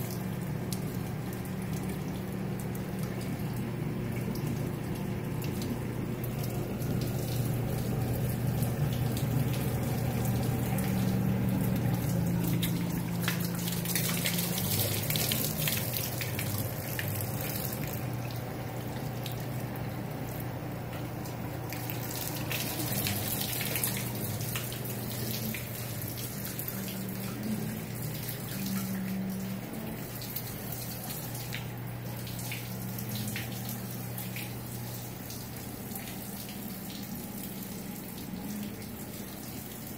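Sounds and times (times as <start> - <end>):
steady low hum: 0.0 - 39.9
water splashing onto flooded floor: 0.0 - 39.9.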